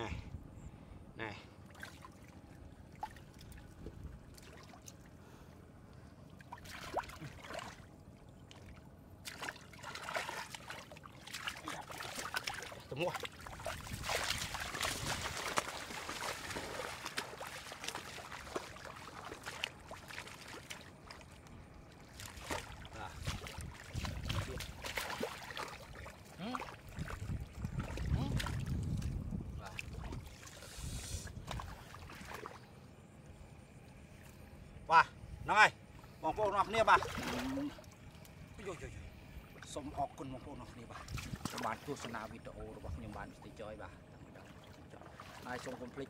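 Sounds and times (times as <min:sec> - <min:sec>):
splashing in muddy water: 0:06.3 - 0:32.7, 0:36.7 - 0:38.3, 0:40.7 - 0:43.4, 0:44.2 - 0:46.0.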